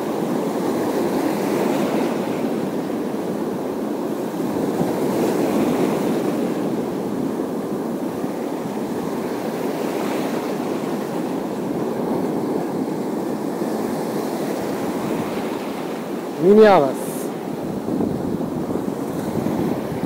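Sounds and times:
waves washing on rocky shore: 0:00.0 - 0:20.0
wind buffeting microphone: 0:17.4 - 0:20.0.

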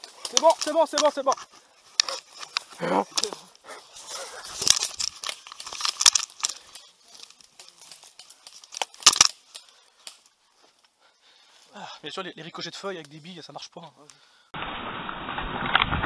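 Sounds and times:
dry leaves crackling and rustling: 0:00.0 - 0:10.3.

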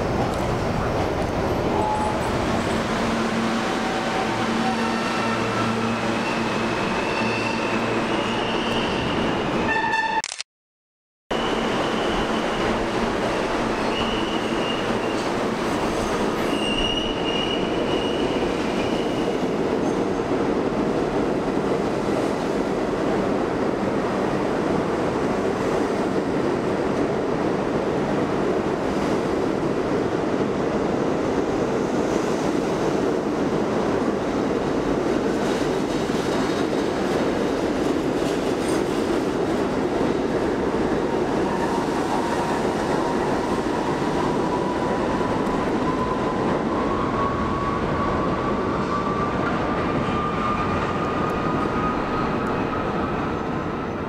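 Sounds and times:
train wheels rumbling on rail: 0:11.5 - 0:54.0.

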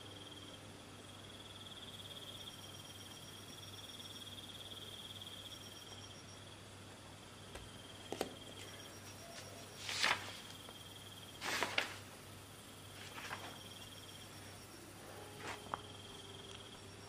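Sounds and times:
cricket trill: 0:00.0 - 0:17.0
paper pages turning: 0:09.4 - 0:10.8, 0:11.4 - 0:12.1, 0:13.0 - 0:13.8.

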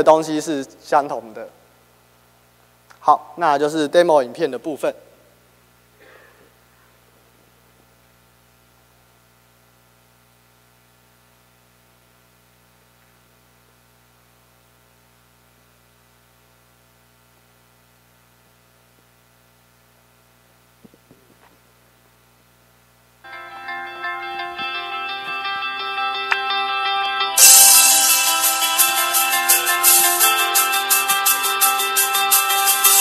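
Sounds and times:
electrical mains hum: 0:00.0 - 0:32.7
guitar music: 0:23.3 - 0:33.0.

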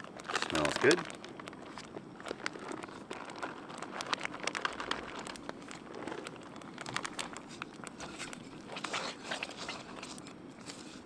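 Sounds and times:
plastic bag crinkling: 0:00.0 - 0:11.0.

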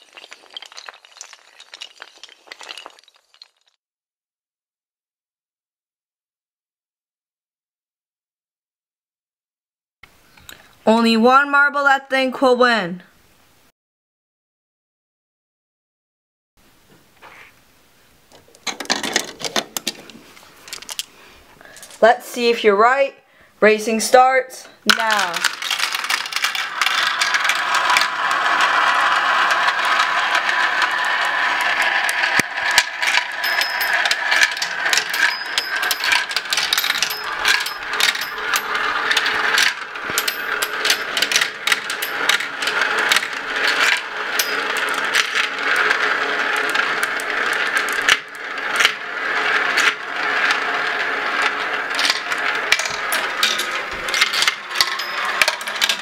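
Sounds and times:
marbles clacking on plastic: 0:00.0 - 0:03.8, 0:18.3 - 0:22.0, 0:24.9 - 0:56.0
marbles rolling in plastic run: 0:00.0 - 0:03.8, 0:18.3 - 0:22.5, 0:24.9 - 0:56.0.

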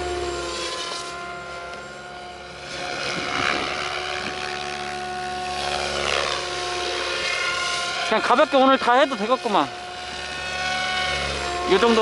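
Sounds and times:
radio-controlled helicopter whine: 0:00.0 - 0:12.0.

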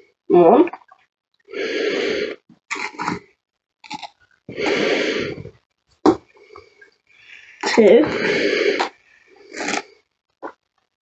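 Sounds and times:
person huffing breaths: 0:04.5 - 0:05.6, 0:06.4 - 0:09.4.

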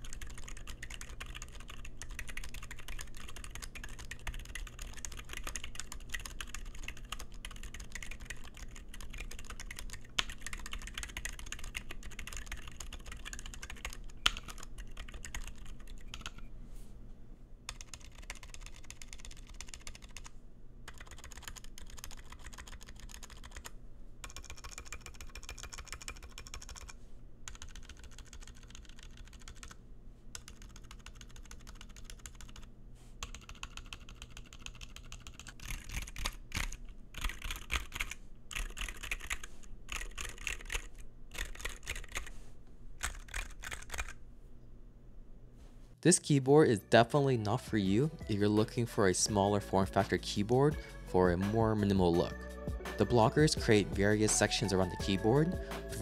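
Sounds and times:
muted keyboard typing: 0:00.0 - 0:16.5, 0:17.7 - 0:20.3, 0:20.9 - 0:29.8, 0:30.4 - 0:42.3, 0:43.0 - 0:44.2.

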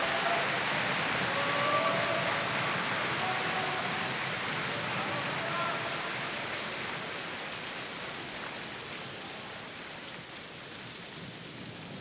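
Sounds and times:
crowd applause: 0:00.0 - 0:02.5.

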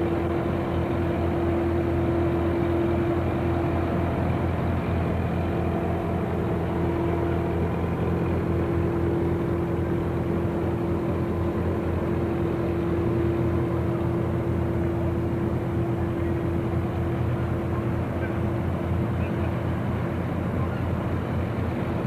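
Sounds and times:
boat engine running: 0:00.0 - 0:22.0.

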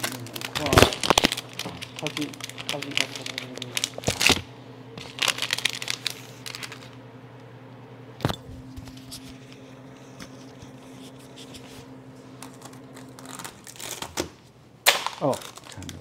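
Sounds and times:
plastic wrapper rustling: 0:00.0 - 0:07.0, 0:10.3 - 0:16.0
steady low hum: 0:00.0 - 0:16.0.

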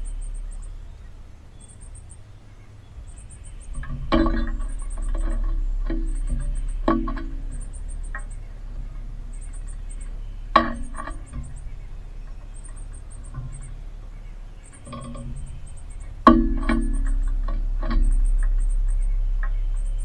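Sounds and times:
high rapid bird chirping: 0:00.0 - 0:20.0
birds landing on metal pole: 0:03.7 - 0:13.9, 0:14.8 - 0:19.6.

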